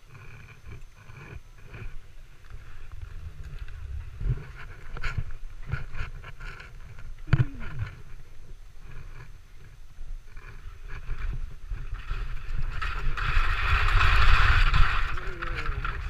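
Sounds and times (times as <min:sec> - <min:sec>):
wind buffeting microphone: 0:00.6 - 0:16.0
skis sliding on snow: 0:10.4 - 0:16.0.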